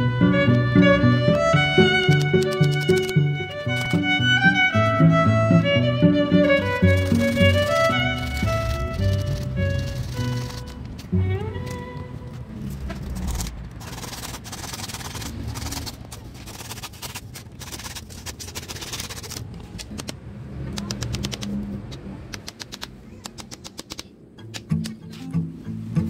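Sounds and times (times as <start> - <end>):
hand saw cutting bamboo: 2.0 - 4.1, 6.4 - 10.8, 12.9 - 20.1
quiet background music: 24.3 - 26.0.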